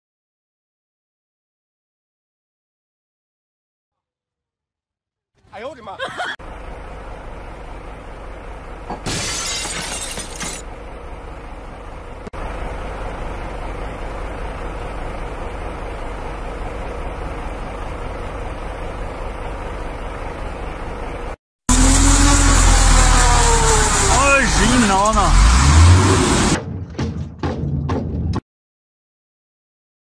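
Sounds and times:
vehicle engine running: 0:05.5 - 0:09.1, 0:09.8 - 0:27.0
steady rumble: 0:10.6 - 0:21.9
loud engine revving: 0:21.7 - 0:26.6.

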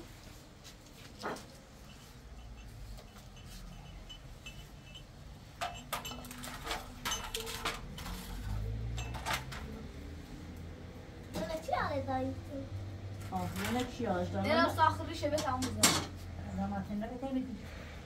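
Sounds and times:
dishes clinking and knocking: 0:01.2 - 0:09.8, 0:15.3 - 0:16.2.

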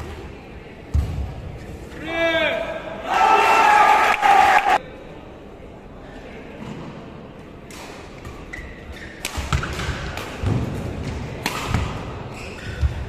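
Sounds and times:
racket hitting shuttlecock: 0:09.2 - 0:12.1
shoe squeaks on court: 0:12.3 - 0:13.0.

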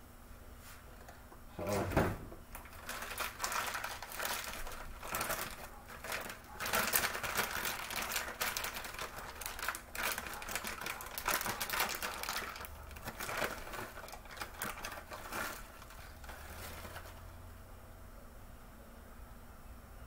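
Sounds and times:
plastic bag crinkling: 0:02.4 - 0:17.3.

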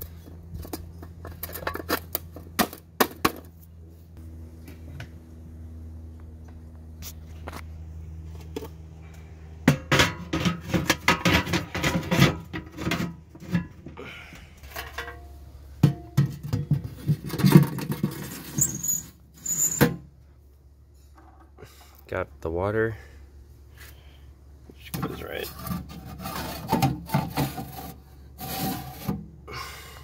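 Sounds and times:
metal box clattering and knocking: 0:09.7 - 0:13.8, 0:15.8 - 0:18.6.

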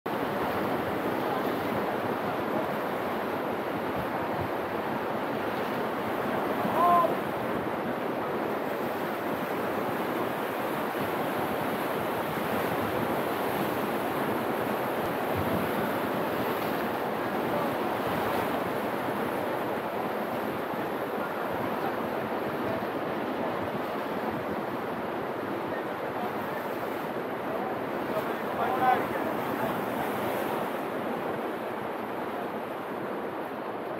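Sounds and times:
wind on microphone: 0:00.1 - 0:25.8
waves washing against breakwater: 0:00.1 - 0:33.9
brief high cry: 0:06.7 - 0:07.2.

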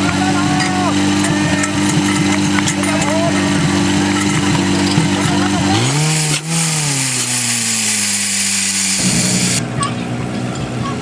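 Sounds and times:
pump engine revving: 0:00.0 - 0:09.7
pump engine running steadily: 0:00.0 - 0:10.8
steady hiss: 0:06.0 - 0:09.6.

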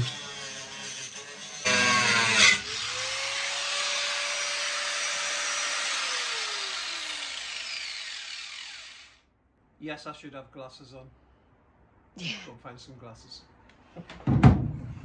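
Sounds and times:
power grinder grinding metal: 0:00.0 - 0:09.2.

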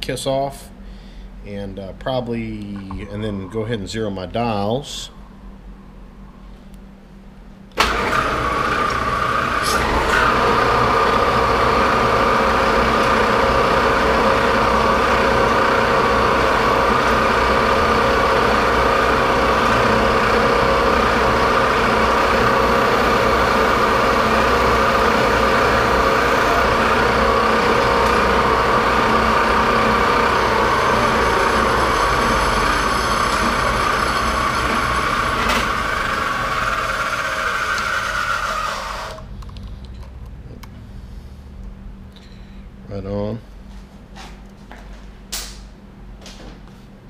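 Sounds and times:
lathe running with whine: 0:07.8 - 0:39.3.

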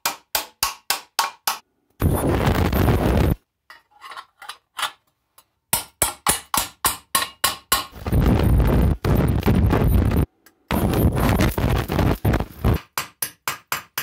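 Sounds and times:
welding arc crackling: 0:02.0 - 0:03.4, 0:08.0 - 0:12.8
hammer striking steel tube: 0:05.7 - 0:08.0, 0:12.8 - 0:14.0.

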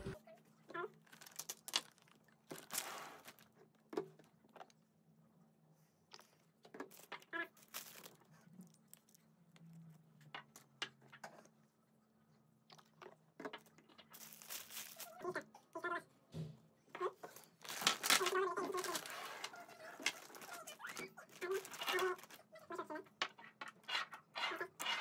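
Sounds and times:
plastic bag crinkling: 0:01.0 - 0:03.5, 0:06.9 - 0:09.2, 0:13.5 - 0:15.4, 0:17.3 - 0:22.6.

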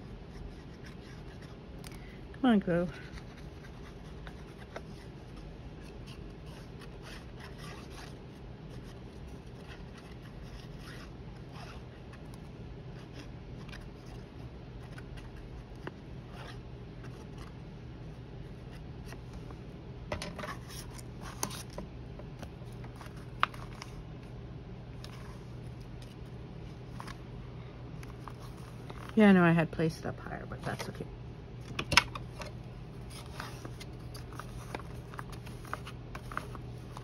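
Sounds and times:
steady low hum: 0:00.0 - 0:37.0
paper rustling: 0:32.4 - 0:37.0.

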